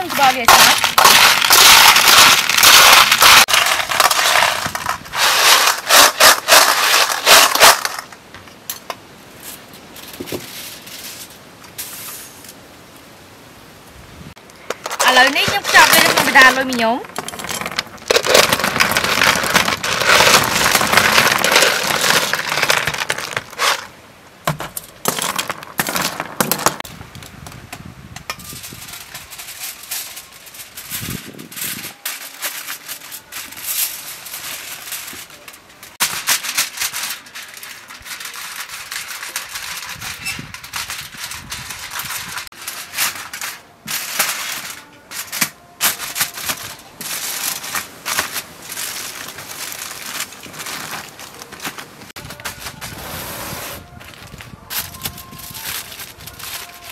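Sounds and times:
foil crinkling: 0.0s - 8.2s, 14.6s - 23.9s, 28.4s - 56.9s
shells clattering onto foil: 0.0s - 12.5s, 14.6s - 23.9s, 28.4s - 52.9s, 54.5s - 56.9s.

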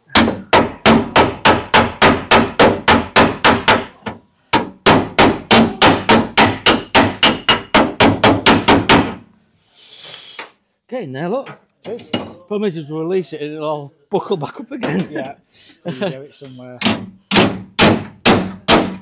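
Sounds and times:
hammer blows on sheet steel: 0.1s - 9.2s, 16.8s - 19.0s.

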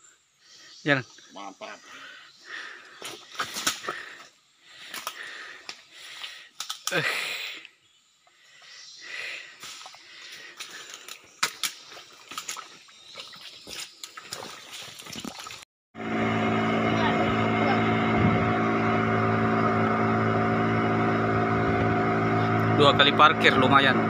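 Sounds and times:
footsteps on muddy forest floor: 9.6s - 15.6s.

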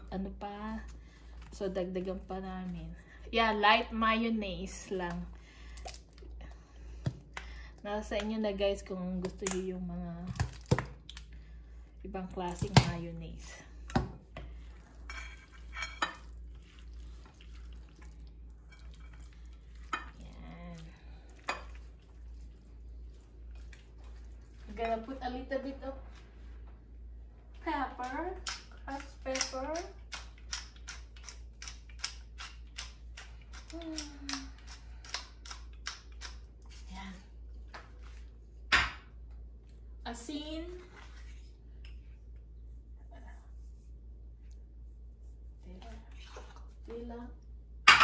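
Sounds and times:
spatula stirring wet salad: 13.8s - 26.3s.

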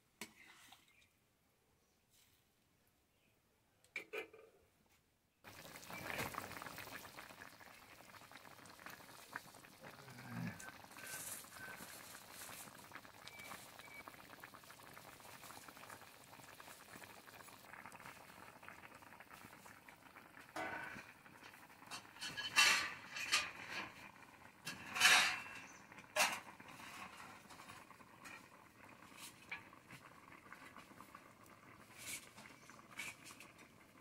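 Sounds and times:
curry bubbling in a pan: 5.4s - 34.0s.

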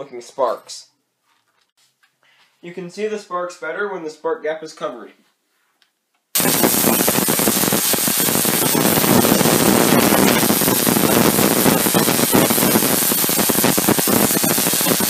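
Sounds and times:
tesla coil crackling buzz: 6.4s - 15.0s.

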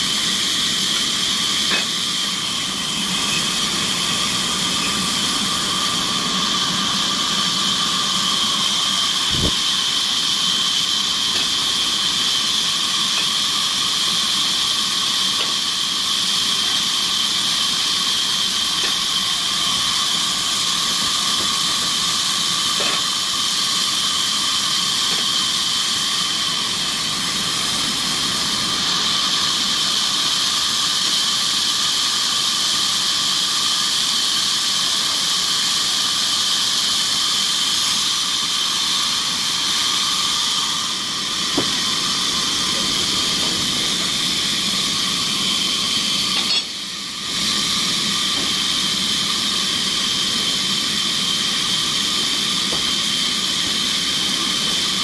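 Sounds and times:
band saw cutting log: 41.2s - 46.7s.

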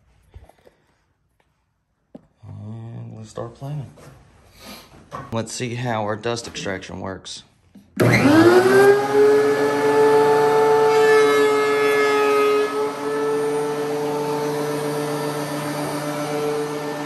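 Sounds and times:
thickness planer motor running: 8.0s - 17.0s.

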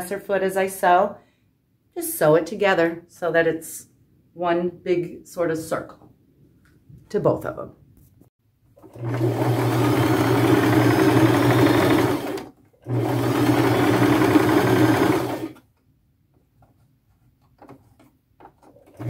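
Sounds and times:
sewing machine stitching: 8.8s - 15.6s, 18.6s - 19.0s.

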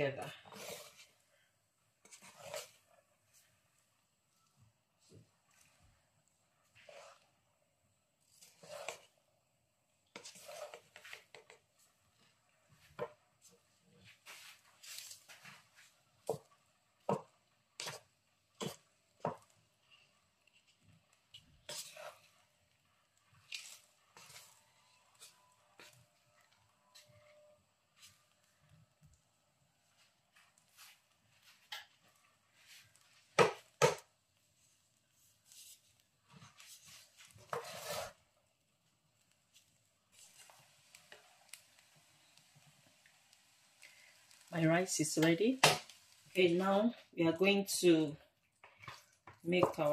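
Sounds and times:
wooden spatula scraping frying pan: 0.0s - 1.2s, 2.0s - 3.7s, 6.6s - 7.4s, 8.2s - 9.2s, 10.0s - 22.6s, 23.2s - 28.4s, 35.4s - 38.3s, 39.5s - 43.1s, 48.6s - 49.9s.

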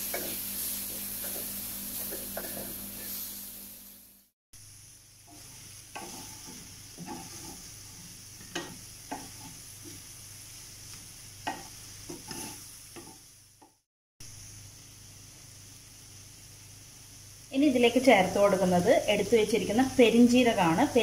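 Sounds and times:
wooden spatula scraping a pan: 0.0s - 3.4s, 5.3s - 10.1s, 11.5s - 13.3s
prawns sizzling in a pan: 0.0s - 21.0s.

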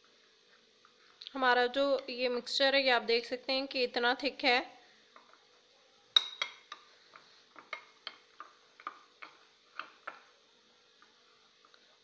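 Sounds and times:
spoon clinking against glass bowl: 6.2s - 6.8s
spoon stirring thick slurry: 6.2s - 10.3s.

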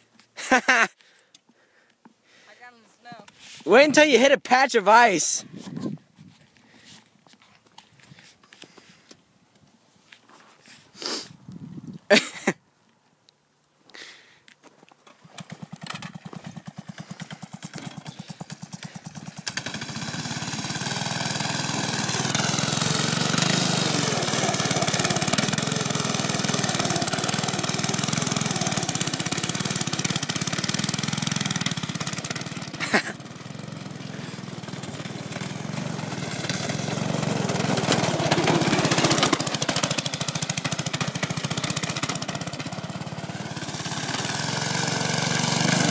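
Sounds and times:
go-kart engine revving: 15.2s - 45.9s.

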